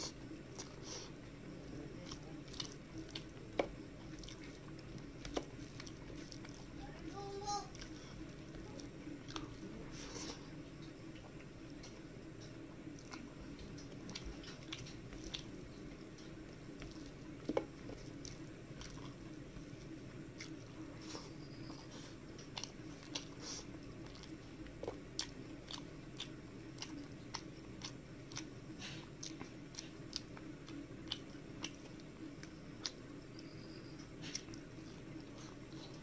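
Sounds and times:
wet chewing: 0:00.0 - 0:36.0.

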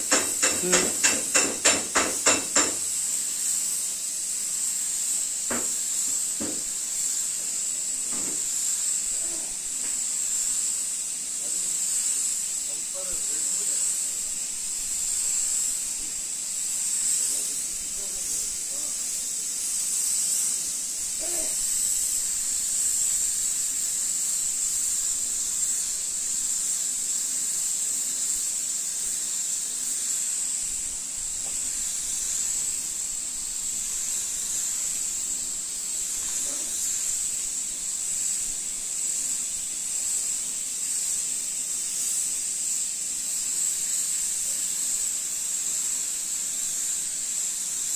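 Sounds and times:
spray gun hissing: 0:00.0 - 0:47.9.

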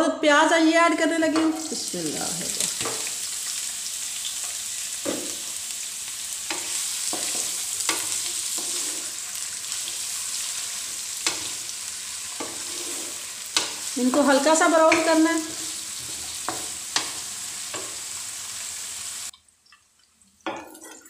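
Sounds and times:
onions sizzling in hot oil: 0:01.0 - 0:19.3
spatula scraping and knocking pan: 0:01.3 - 0:01.8, 0:02.5 - 0:03.2, 0:05.0 - 0:05.5, 0:06.4 - 0:18.1.

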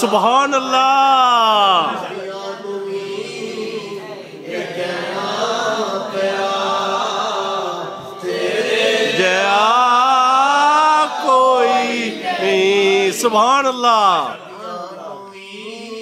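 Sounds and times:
man singing into microphone: 0:09.1 - 0:16.0.

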